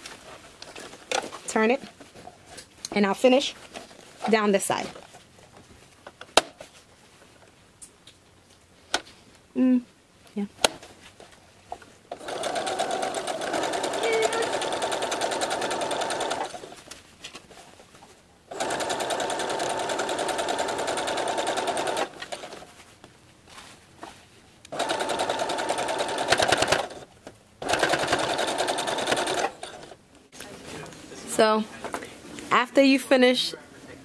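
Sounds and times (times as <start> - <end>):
sewing machine stitching: 12.1 - 16.8, 18.5 - 22.7, 24.7 - 30.0.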